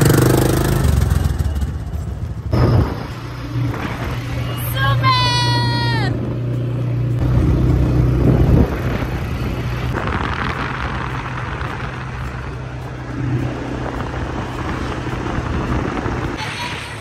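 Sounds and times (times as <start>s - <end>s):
quad engine running: 0.0s - 17.0s
wind and road noise hiss: 7.8s - 17.0s.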